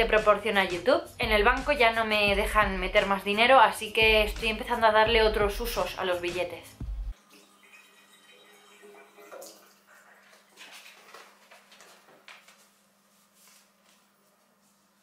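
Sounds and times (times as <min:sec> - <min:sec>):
paper banknotes rustling: 0:10.5 - 0:14.9.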